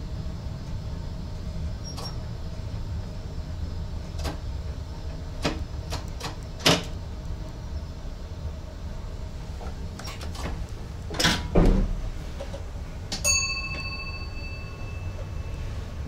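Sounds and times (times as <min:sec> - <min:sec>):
train low rumble with knocks: 0:00.0 - 0:16.0
bell-like ding: 0:13.2 - 0:15.7.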